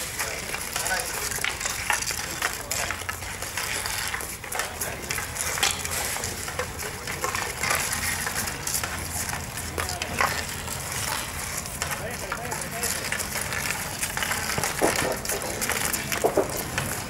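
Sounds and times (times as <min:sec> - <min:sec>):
hockey sticks scraping on asphalt: 0:00.0 - 0:17.0
hockey sticks tapping balls: 0:00.0 - 0:17.0.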